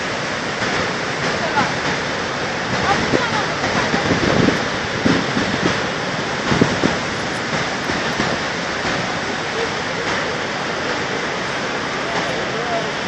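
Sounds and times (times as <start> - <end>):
waterfall roaring: 0.0 - 13.0
low thumps: 0.4 - 10.5.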